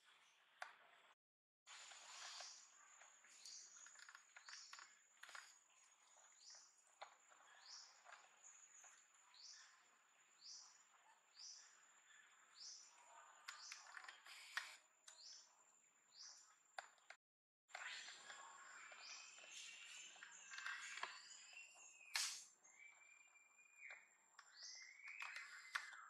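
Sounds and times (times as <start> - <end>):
high bird chirp: 17.9 - 26.0.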